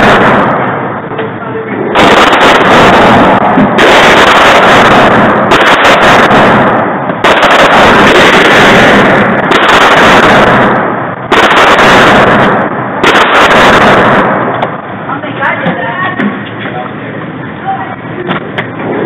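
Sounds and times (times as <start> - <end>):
rapid gunfire echoing indoors: 0.0 - 1.1, 1.9 - 15.0.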